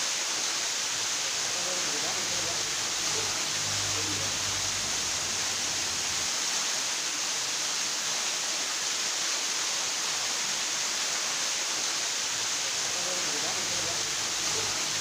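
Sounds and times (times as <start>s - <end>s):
small waterfall rushing: 0.0s - 15.0s.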